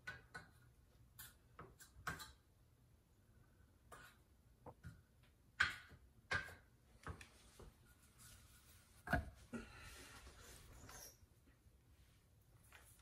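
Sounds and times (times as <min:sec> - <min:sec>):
tiles clicking and knocking: 0:00.0 - 0:02.8, 0:03.6 - 0:08.4.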